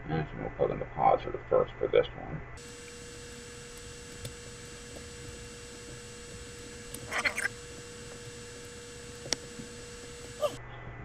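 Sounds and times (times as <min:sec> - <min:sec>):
faint electrical hum: 0:00.0 - 0:11.0
wire connector rustling: 0:02.6 - 0:10.4.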